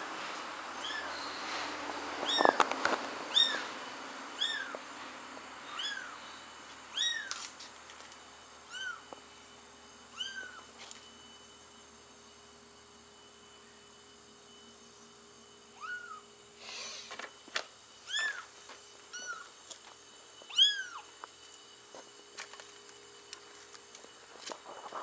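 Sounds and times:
kitten mewing: 0:15.8 - 0:16.2.

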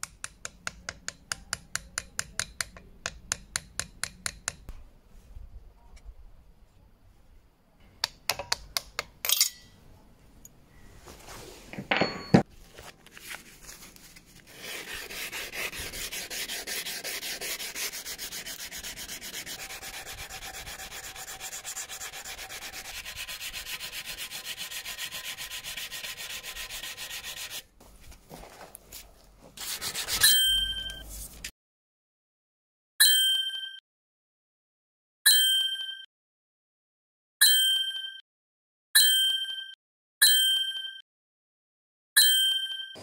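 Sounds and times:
sandpaper hand sanding: 0:14.5 - 0:27.7, 0:29.6 - 0:30.3.

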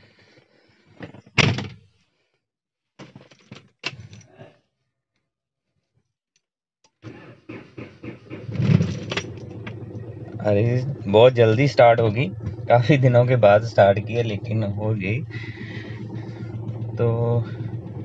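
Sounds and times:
car engine starting: 0:07.0 - 0:18.0
car starter cranking engine: 0:07.0 - 0:18.0.

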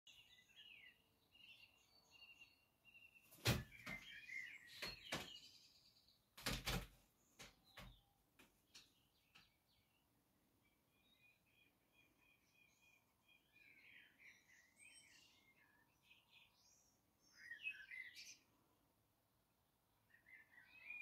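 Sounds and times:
high chirping bird calls: 0:00.1 - 0:05.9.

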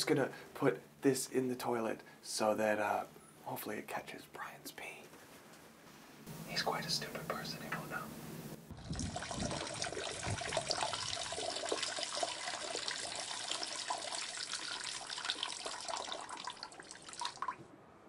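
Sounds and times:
urine stream splashing: 0:08.9 - 0:17.6.

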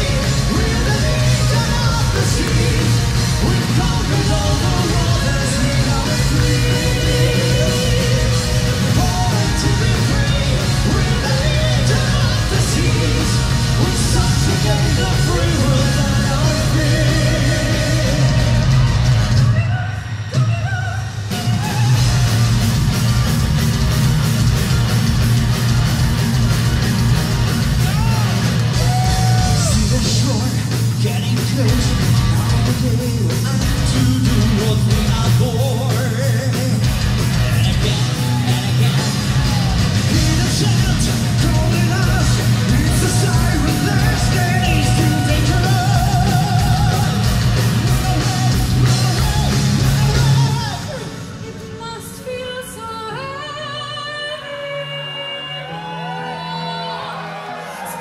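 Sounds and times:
male and female singing: 0:00.0 - 0:18.8, 0:37.8 - 0:57.3
metal band playing live: 0:00.0 - 0:52.0
pounding drums: 0:21.3 - 0:50.9.

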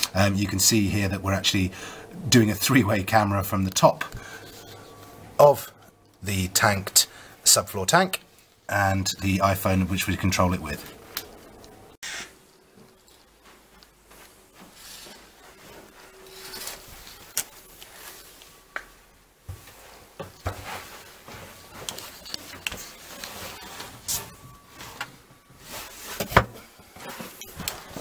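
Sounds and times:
rubbing against wood and carpet: 0:19.5 - 0:28.0.

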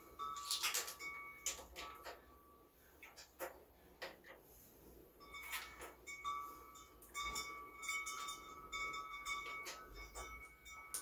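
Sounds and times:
hand tool clinking on metal fasteners: 0:07.0 - 0:11.0.

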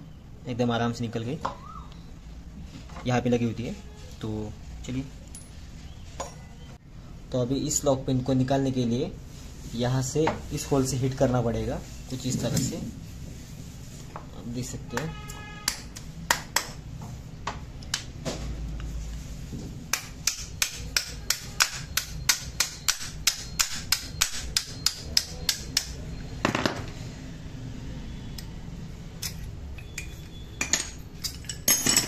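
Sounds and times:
hammer tapping on metal: 0:19.9 - 0:26.0.

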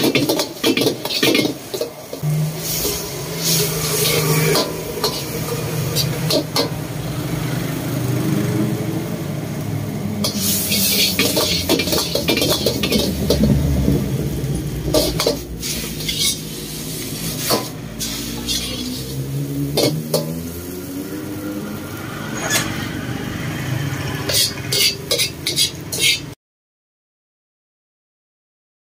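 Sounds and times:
ladle scraping and clanking on wok: 0:00.0 - 0:07.2, 0:10.2 - 0:13.8, 0:14.5 - 0:20.8, 0:22.0 - 0:26.4
sizzling: 0:00.0 - 0:26.4.

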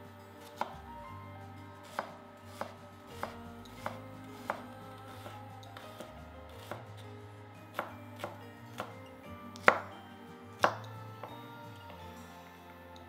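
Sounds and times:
background music: 0:00.0 - 0:13.0
knife chopping on cutting board: 0:00.4 - 0:00.8, 0:01.8 - 0:07.0, 0:07.7 - 0:09.0, 0:09.6 - 0:10.0, 0:10.6 - 0:10.9.

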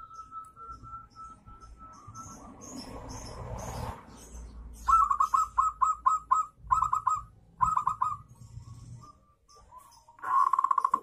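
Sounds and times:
dove cooing: 0:04.9 - 0:11.0.

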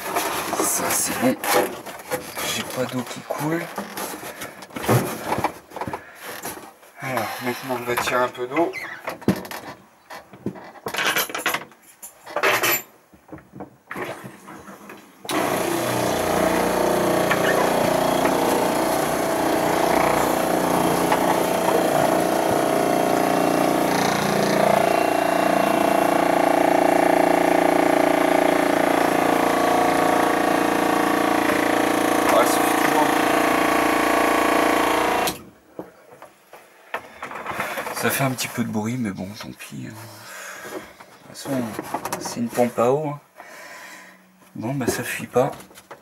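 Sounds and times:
electric water pump humming: 0:15.3 - 0:35.6.

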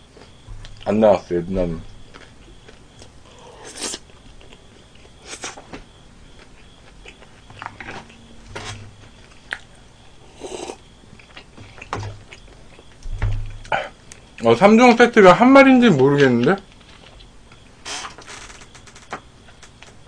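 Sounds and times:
person chewing food: 0:01.8 - 0:14.4, 0:16.6 - 0:17.8.

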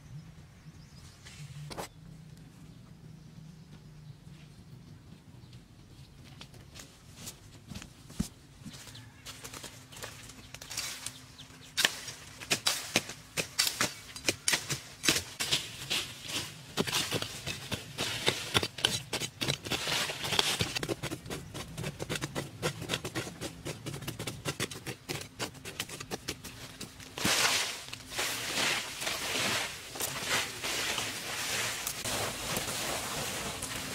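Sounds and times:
digging tools chopping soil: 0:11.7 - 0:33.9.

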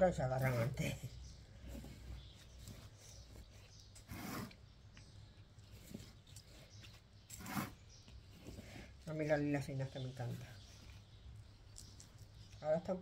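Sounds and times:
scraping in soil: 0:01.6 - 0:04.6, 0:05.6 - 0:09.4.

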